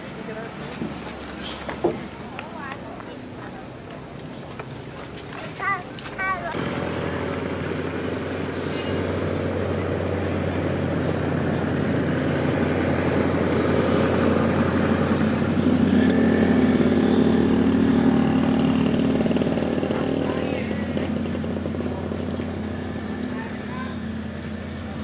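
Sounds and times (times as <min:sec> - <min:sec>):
diesel train pulling away: 0:06.4 - 0:25.0.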